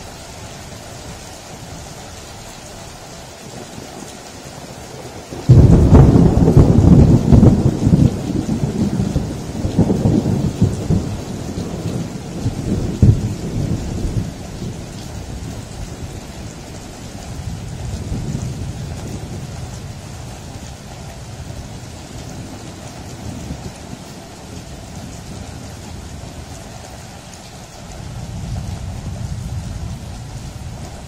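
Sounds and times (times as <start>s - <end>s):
rain falling: 0.0s - 31.0s
thunder rolling: 5.4s - 26.5s.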